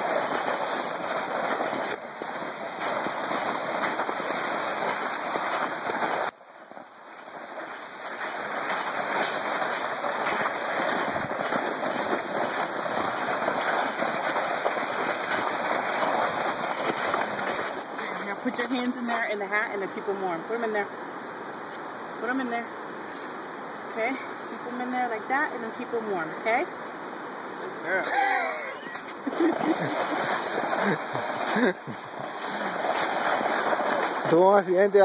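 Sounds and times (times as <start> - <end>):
plastic sled scraping over snow: 0.0 - 19.4, 29.2 - 35.0.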